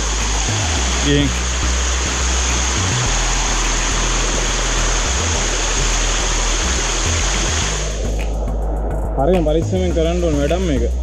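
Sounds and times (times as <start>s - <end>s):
waterfall rushing over rocks: 0.0s - 8.4s.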